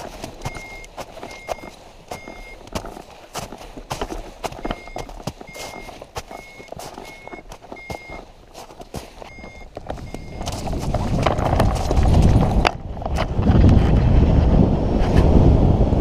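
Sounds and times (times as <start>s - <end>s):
wind noise on microphone: 0.0s - 8.3s, 9.3s - 16.0s
footsteps crunching on snow: 0.0s - 13.3s
variometer beeping high pips: 0.4s - 2.6s, 4.5s - 8.3s, 9.2s - 10.5s.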